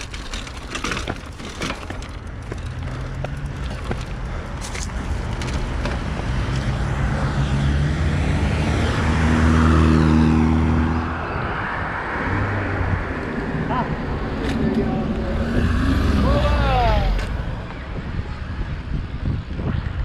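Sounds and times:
vehicle engine passing by: 2.4 - 17.4.

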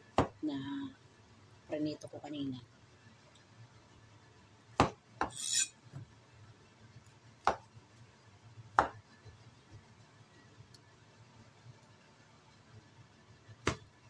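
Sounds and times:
blade scraping board: 5.3 - 5.7.

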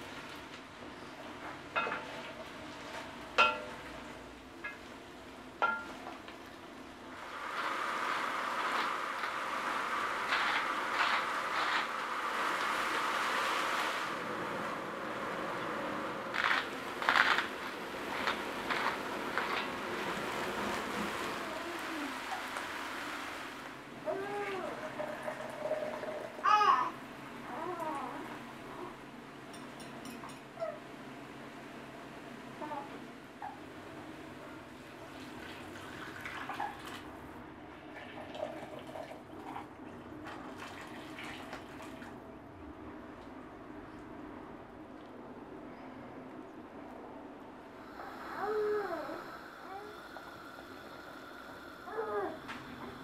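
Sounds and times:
vegetables sizzling in a pot: 7.1 - 14.2
broth pouring and splashing: 7.1 - 26.5, 34.9 - 37.2, 37.8 - 42.3.

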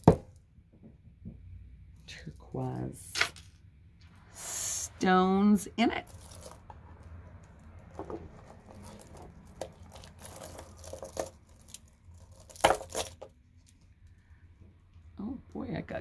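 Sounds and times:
clatter of beads: 6.0 - 13.9
rustling: 6.0 - 14.3.

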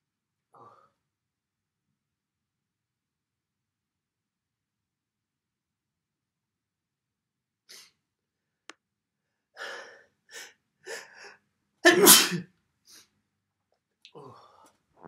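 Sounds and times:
man sneezing loudly: 11.8 - 12.5.

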